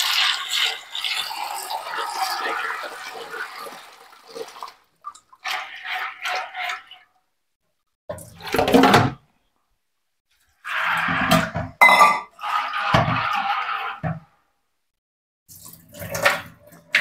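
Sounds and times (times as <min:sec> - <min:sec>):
water running and sloshing: 0:00.0 - 0:07.2, 0:15.5 - 0:17.0.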